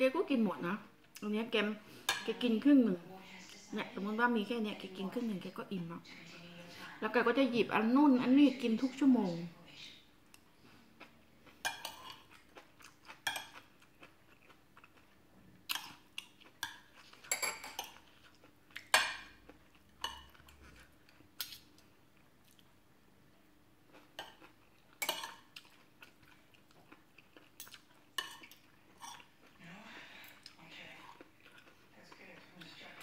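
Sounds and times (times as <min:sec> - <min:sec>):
cutlery clinking on glass plate: 0:16.6 - 0:18.0.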